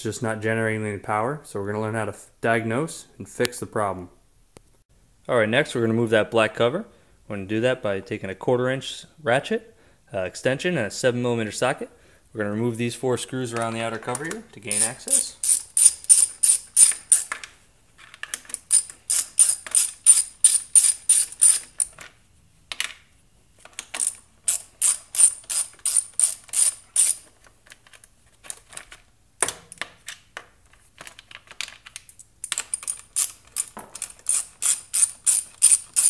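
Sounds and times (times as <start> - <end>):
ratchet clicking: 14.7 - 17.3, 18.5 - 21.9, 24.0 - 27.2, 32.4 - 36.0.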